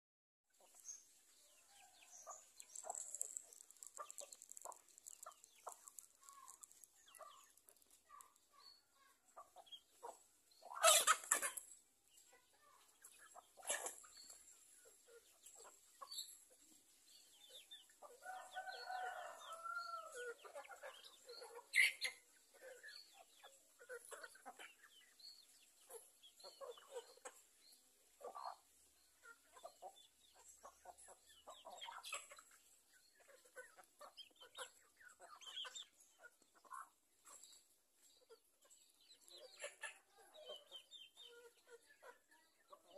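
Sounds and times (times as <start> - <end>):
chickens clucking: 0.5 - 42.9
drawn-out chicken call: 0.6 - 11.7, 17.9 - 24.8.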